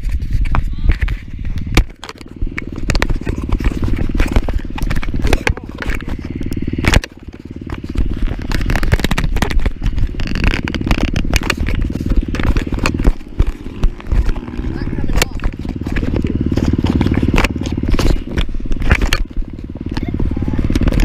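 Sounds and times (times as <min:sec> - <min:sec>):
dirt bike engine idling: 0:00.0 - 0:21.0.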